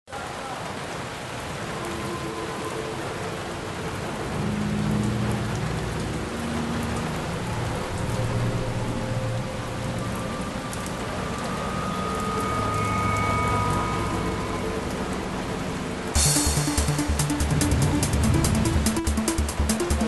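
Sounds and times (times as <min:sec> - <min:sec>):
heavy rain hissing: 0:00.1 - 0:20.0
low humming tones: 0:04.4 - 0:20.0.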